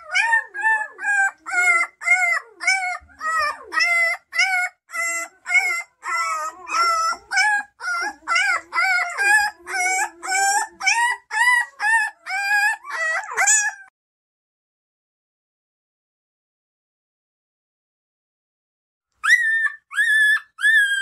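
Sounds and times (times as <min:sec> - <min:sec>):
puppy squealing cries: 0:00.0 - 0:13.9, 0:19.2 - 0:21.0.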